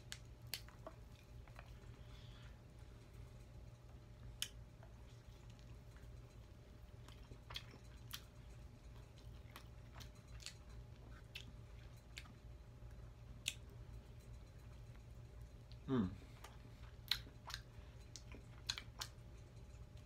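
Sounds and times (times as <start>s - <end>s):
low steady hum: 0.0s - 20.0s
person chewing crunchy food: 4.0s - 14.4s, 15.0s - 20.0s.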